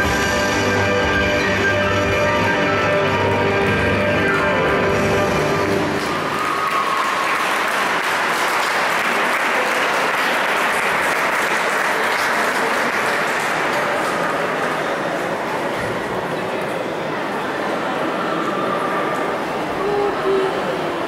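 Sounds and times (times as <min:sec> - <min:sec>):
audience applauding: 0:05.6 - 0:16.1.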